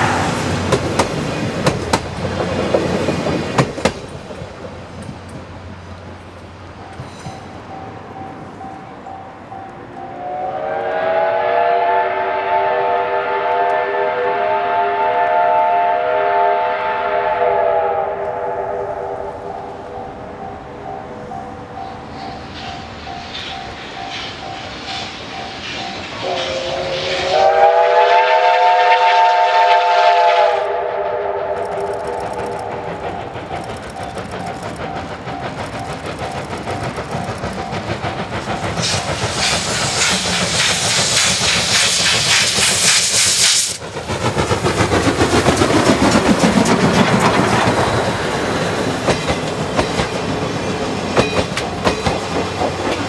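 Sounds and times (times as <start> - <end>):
train wheel clatter: 0.0 - 10.2, 19.6 - 28.4, 31.5 - 53.0
steam locomotive exhaust beats: 0.0 - 53.0
steam whistle: 10.1 - 19.7, 22.2 - 32.9.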